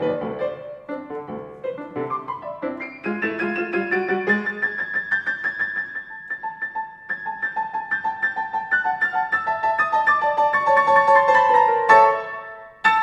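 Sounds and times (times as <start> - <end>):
solo piano piece: 0.0 - 13.0.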